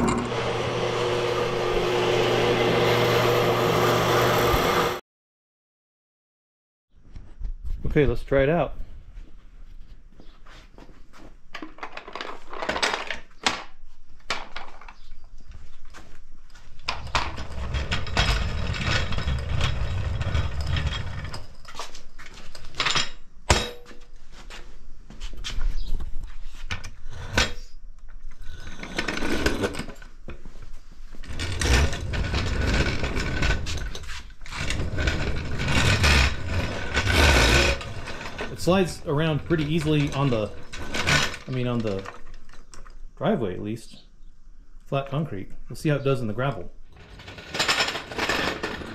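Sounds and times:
wheels rumbling on concrete: 0.0 - 5.0, 14.2 - 23.2, 28.2 - 43.4, 46.6 - 48.9.

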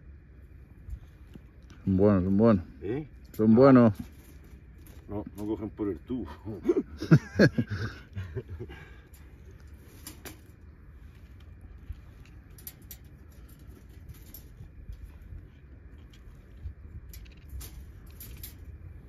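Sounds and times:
steady low rumble: 0.0 - 19.0
wire cage trap rattling: 9.0 - 19.0.

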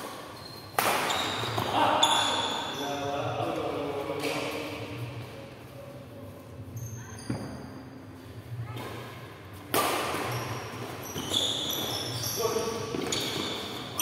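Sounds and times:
racket hitting shuttlecock: 0.0 - 2.3, 9.7 - 12.0
shoes squeaking on court: 0.0 - 3.0, 6.7 - 9.2, 10.1 - 14.0.

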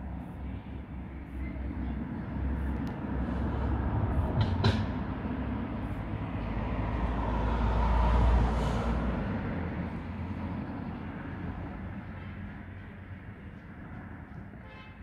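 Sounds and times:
road vehicle passing: 0.0 - 14.7
sharp knock: 4.4 - 5.0.

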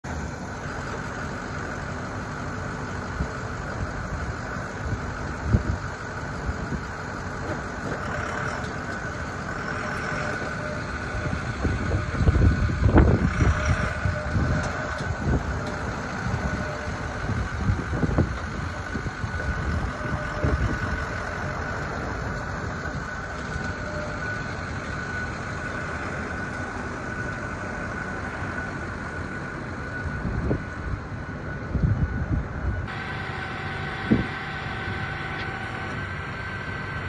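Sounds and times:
pickup truck engine running: 0.0 - 37.0.

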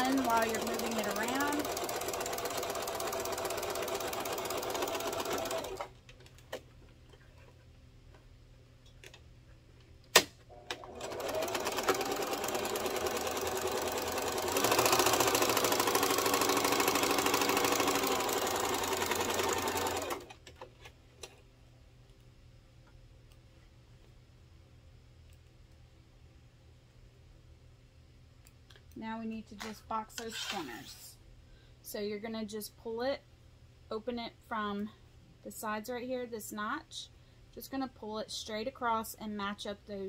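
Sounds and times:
sewing machine stitching: 0.0 - 5.9, 10.5 - 20.4.

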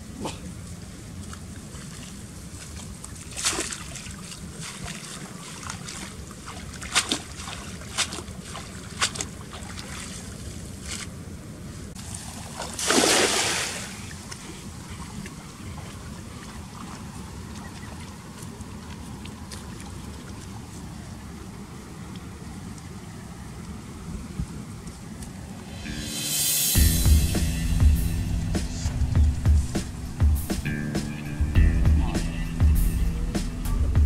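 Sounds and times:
water splashing: 0.3 - 11.2, 12.0 - 23.1
low wind rumble on microphone: 20.4 - 25.9, 26.8 - 30.8.

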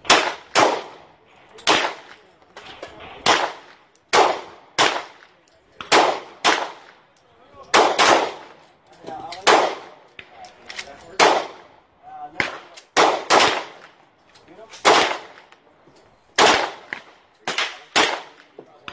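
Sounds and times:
pistol shots: 0.0 - 7.0, 7.7 - 8.6, 9.3 - 10.3, 11.2 - 11.7, 12.4 - 14.0, 14.7 - 15.5, 16.4 - 18.9.

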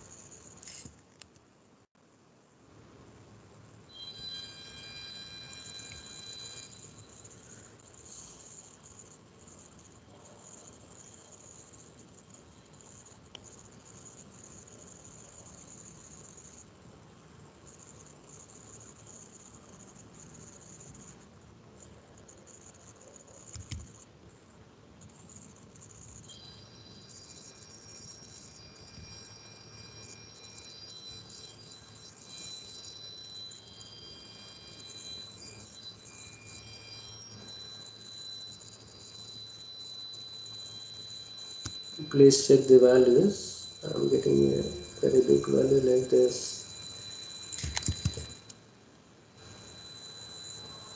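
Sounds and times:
thin high steady tones: 0.0 - 0.9, 3.7 - 24.1, 25.0 - 50.9
high wavering hiss: 3.8 - 24.1, 25.0 - 50.9
computer mouse click: 23.5 - 24.0
low hum: 26.2 - 48.7.

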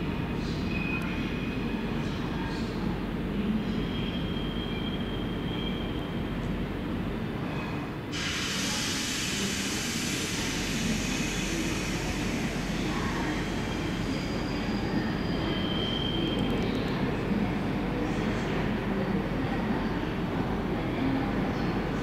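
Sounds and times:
train rumbling on rails: 0.0 - 22.0
high wheel squeals: 13.8 - 16.4.

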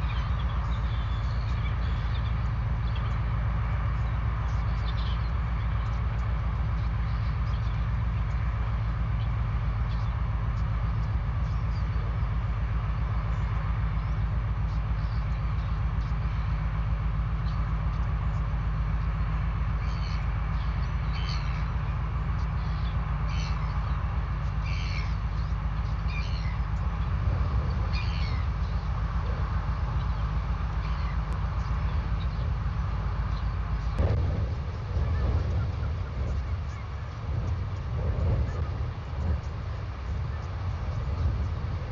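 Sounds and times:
ship engine pulsing drone: 0.0 - 41.9.

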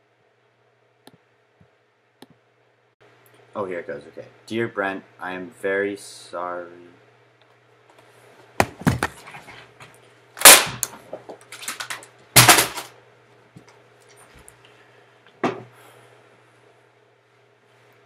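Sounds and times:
things slammed and knocked about: 11.6 - 12.9.

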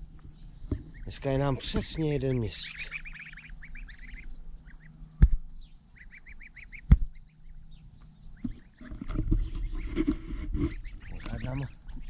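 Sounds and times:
goslings peeping: 0.6 - 12.0
sharp knocks: 5.2 - 5.4, 6.9 - 7.2.

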